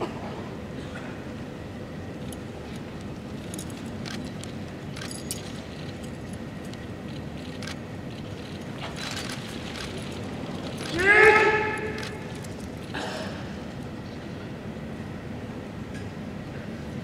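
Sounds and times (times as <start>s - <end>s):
metal chain jingling and clinking: 3.4s - 6.8s.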